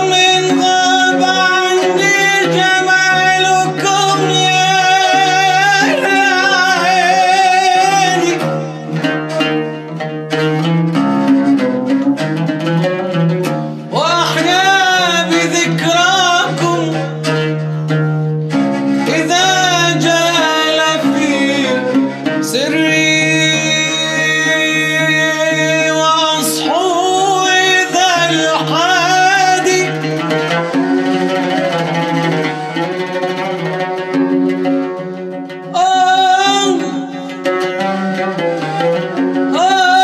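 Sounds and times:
man singing ornamented phrases: 0:00.0 - 0:09.9, 0:13.9 - 0:17.9, 0:18.9 - 0:31.7, 0:35.7 - 0:40.0.

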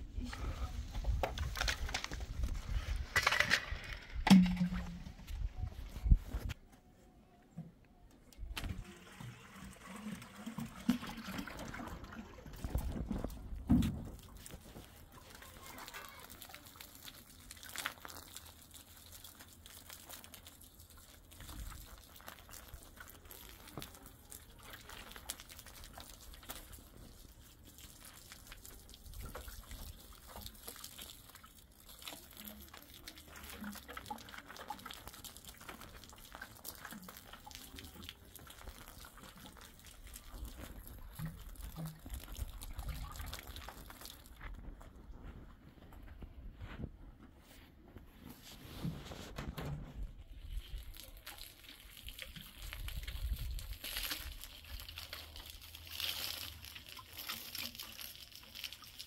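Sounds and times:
wind rumbling on microphone: 0:00.0 - 0:06.6, 0:52.7 - 0:53.8
water pouring from a kettle: 0:08.4 - 0:44.8, 0:50.1 - 0:59.0.

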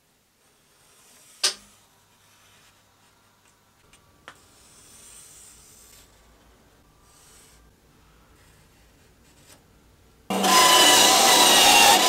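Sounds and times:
pencil scratching along ruler: 0:07.0 - 0:07.7.

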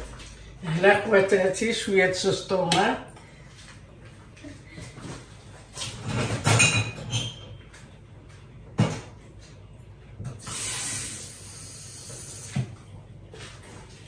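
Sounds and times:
utensils clattering: 0:05.9 - 0:07.6
short hiss: 0:10.4 - 0:12.5.

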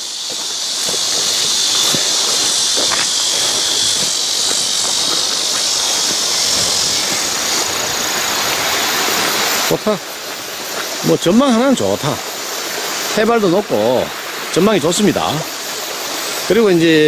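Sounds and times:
faint footfalls in grass: 0:00.0 - 0:09.4, 0:10.2 - 0:11.2
even hiss: 0:00.0 - 0:17.0
insects droning: 0:00.0 - 0:17.0.

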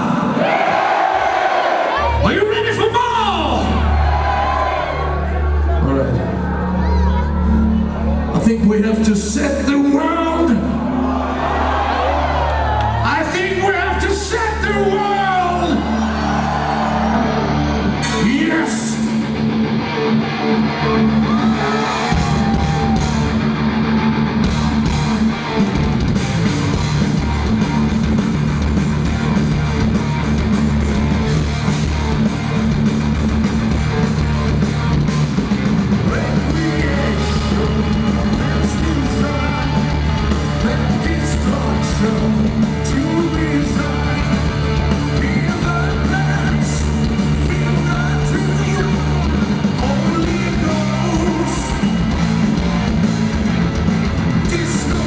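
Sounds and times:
heavy metal band playing live: 0:00.0 - 0:55.0.

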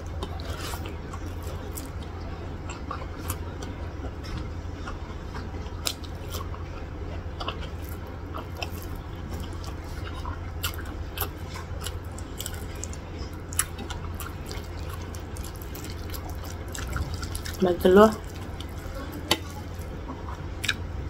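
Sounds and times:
steady low hum: 0:00.0 - 0:21.0
wet chewing: 0:00.0 - 0:21.0.

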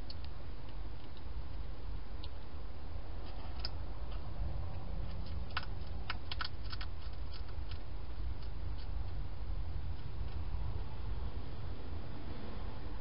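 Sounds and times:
hedgehog crunching dry food: 0:03.2 - 0:10.5.

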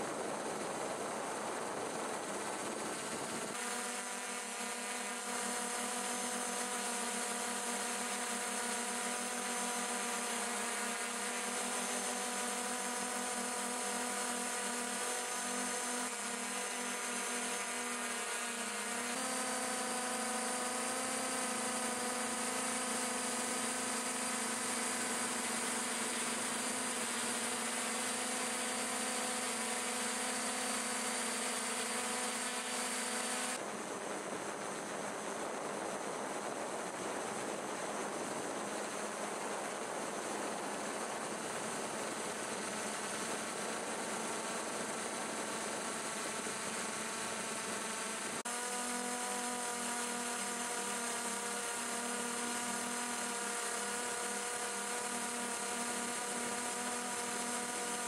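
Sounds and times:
drone propellers whirring: 0:00.0 - 0:33.7.

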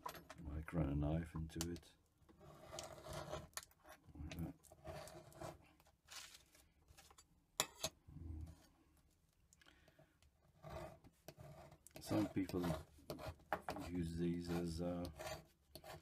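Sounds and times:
tools scraping and rubbing: 0:02.3 - 0:08.7, 0:10.4 - 0:16.0.

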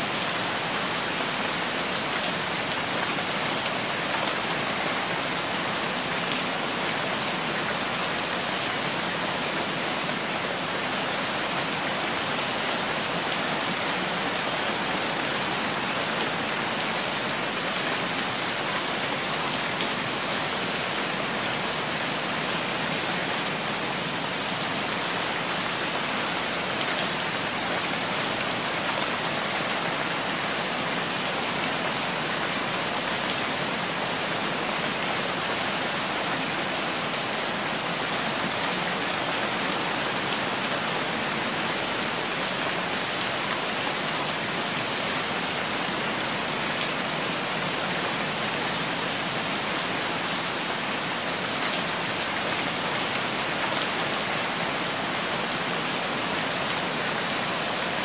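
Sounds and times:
rain on a tile roof: 0:00.0 - 0:58.0.

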